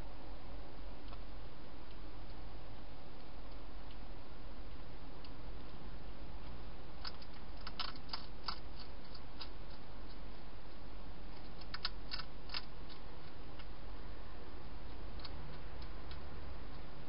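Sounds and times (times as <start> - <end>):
hedgehog crunching dry food: 7.0 - 10.4, 11.3 - 13.8.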